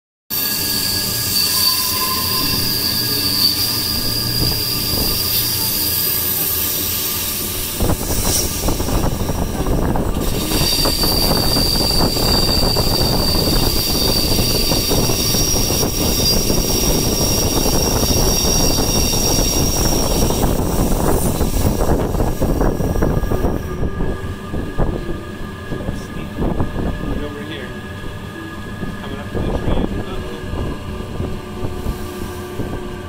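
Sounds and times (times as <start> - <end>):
moving train rumble: 0.3 - 33.0
train wheels squealing: 0.3 - 33.0.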